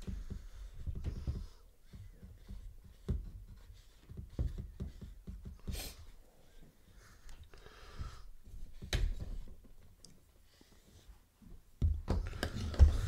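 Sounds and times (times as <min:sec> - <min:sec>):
paintbrushes scratching on canvas: 0:00.0 - 0:07.2.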